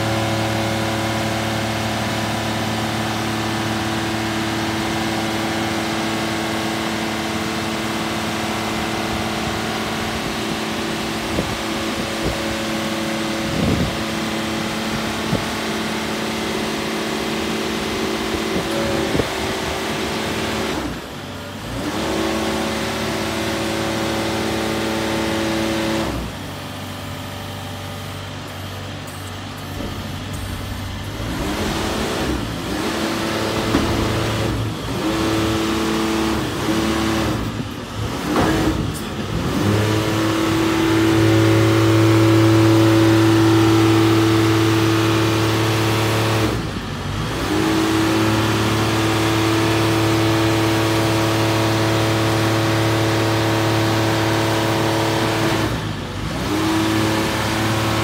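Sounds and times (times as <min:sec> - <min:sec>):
crane engine humming: 0:00.0 - 0:44.9.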